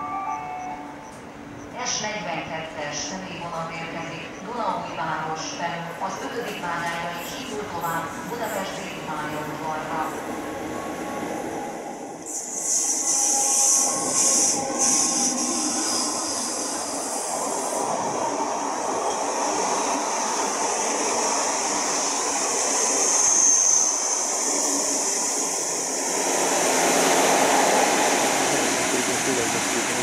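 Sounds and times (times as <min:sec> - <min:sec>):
train wheels rumbling on rails: 0:12.2 - 0:30.0.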